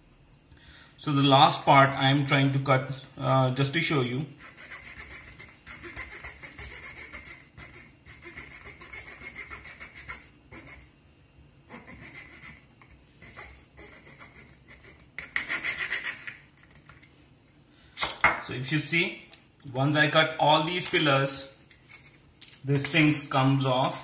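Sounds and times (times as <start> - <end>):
knife sawing through plastic: 4.3 - 10.9, 11.7 - 16.4.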